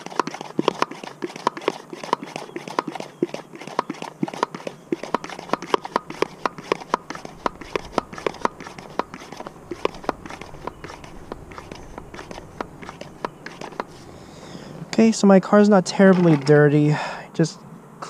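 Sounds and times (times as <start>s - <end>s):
hand pump plunger clicking: 0.0s - 13.9s.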